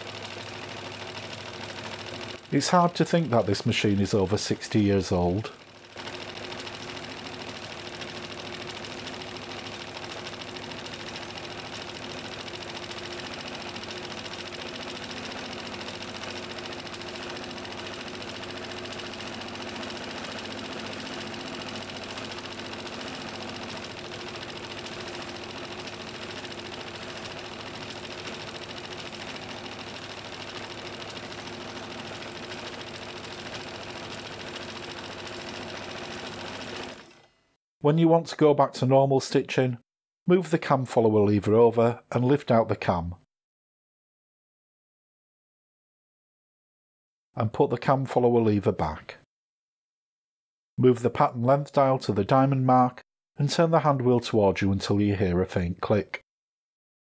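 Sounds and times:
electric sewing machine running: 0:00.0 - 0:03.0, 0:04.9 - 0:37.4.

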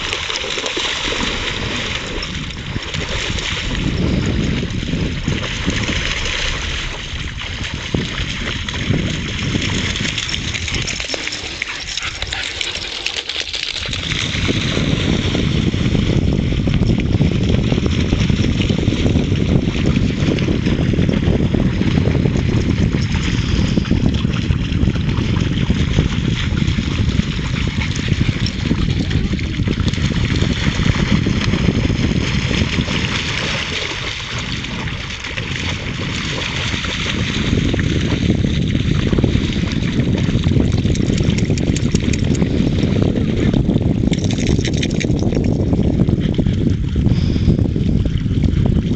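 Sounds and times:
wind buffeting microphone: 0:00.0 - 0:00.4, 0:01.0 - 0:12.9, 0:13.5 - 0:48.9
dogs splashing in water: 0:00.0 - 0:46.9.

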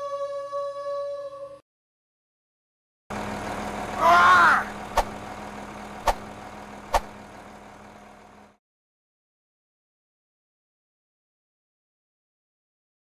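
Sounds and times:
sharp cracks: 0:06.0 - 0:06.3.

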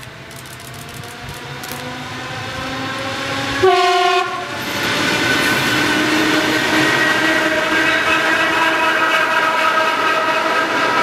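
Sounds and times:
train wheels rolling: 0:00.0 - 0:11.0
train horn blast: 0:03.6 - 0:04.5, 0:05.8 - 0:11.0.

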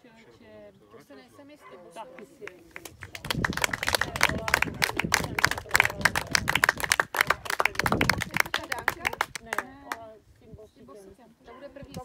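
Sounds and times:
voices: 0:00.0 - 0:12.0
people clapping: 0:02.2 - 0:10.0.

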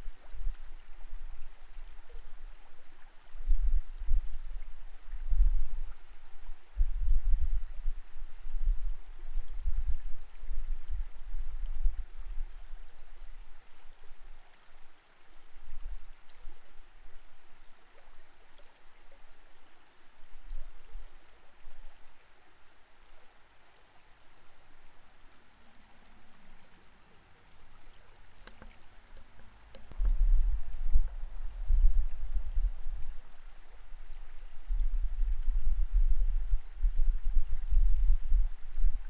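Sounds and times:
muffled underwater flowing water: 0:00.0 - 0:39.0.

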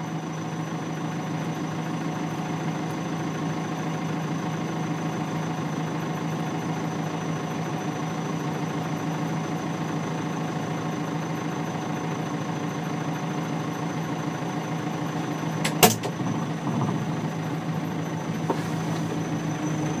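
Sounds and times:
diesel engine idling: 0:00.0 - 0:20.0
high turbo whine: 0:13.4 - 0:20.0.

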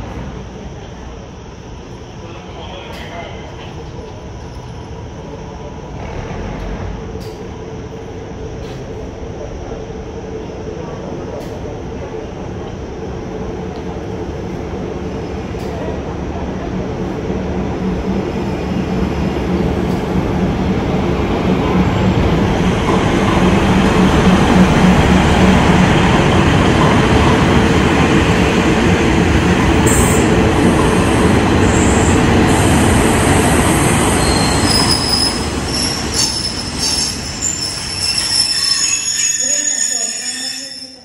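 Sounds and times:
train wheels rumbling: 0:00.0 - 0:41.0
high-pitched metallic squeals: 0:34.1 - 0:41.0.

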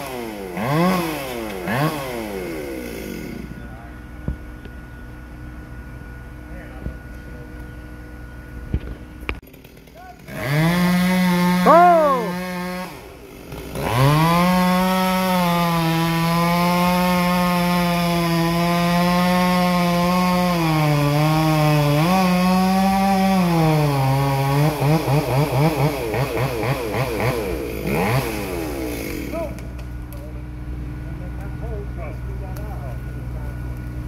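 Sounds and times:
chainsaw cutting wood: 0:00.0 - 0:03.5, 0:09.4 - 0:29.9.

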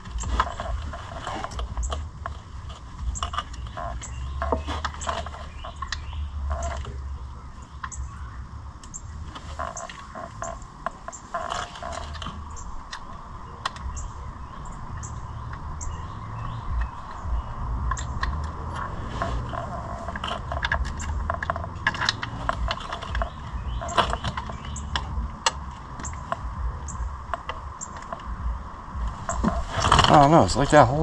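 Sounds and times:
low steady rumble: 0:00.0 - 0:31.0.

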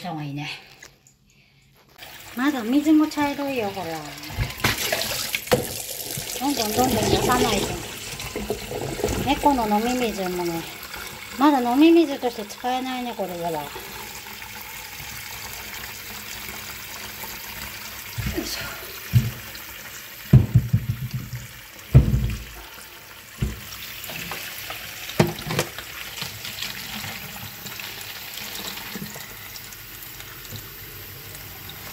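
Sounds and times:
knocks and splashes: 0:04.3 - 0:09.9, 0:19.1 - 0:19.5, 0:20.3 - 0:22.7, 0:23.4 - 0:24.4, 0:25.1 - 0:25.8
tap running into steel bowl: 0:20.3 - 0:22.5, 0:25.1 - 0:26.3.

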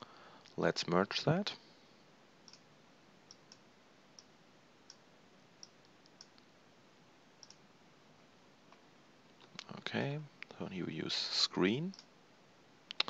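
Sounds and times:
low steady hiss: 0:00.0 - 0:13.0
computer mouse clicks: 0:05.6 - 0:06.4, 0:07.4 - 0:07.6.

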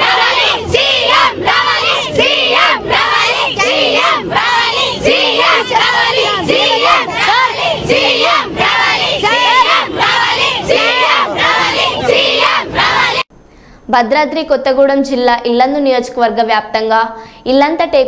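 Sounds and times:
girls chanting in unison: 0:00.0 - 0:13.3.

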